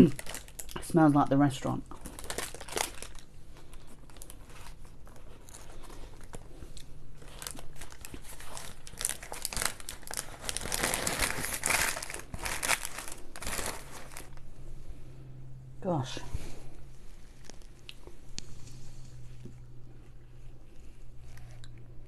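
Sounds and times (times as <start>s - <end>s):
paper wrapping crinkling: 0.0s - 0.9s, 1.9s - 14.4s, 17.2s - 17.9s.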